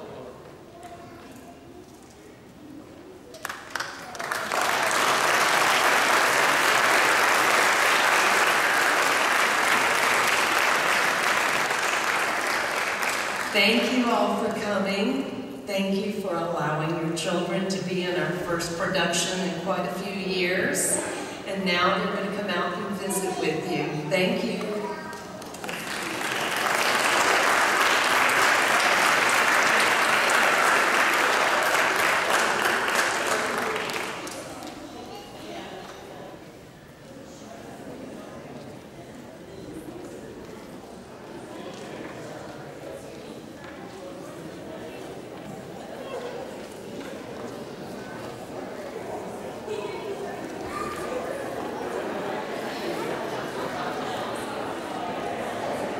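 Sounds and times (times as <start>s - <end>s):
audience applauding: 3.3s - 13.9s, 24.8s - 34.8s.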